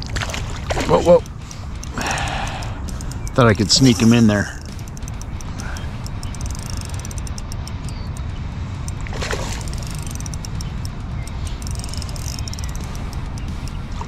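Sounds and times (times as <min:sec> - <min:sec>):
steady low rumble: 0:00.0 - 0:14.0
fish splashing at surface: 0:09.0 - 0:09.8.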